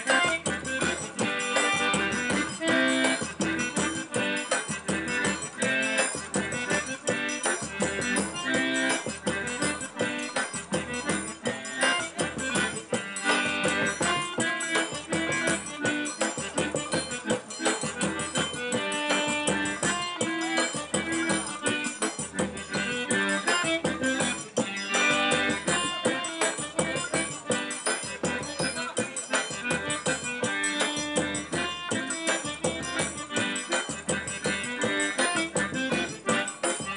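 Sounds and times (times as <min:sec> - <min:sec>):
button accordion playing lively tune: 0:00.0 - 0:36.9.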